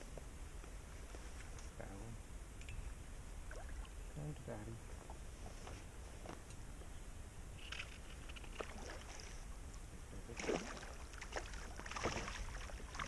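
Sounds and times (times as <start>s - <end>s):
low steady rumble: 0.0s - 13.0s
fish splashing at surface: 10.4s - 13.0s.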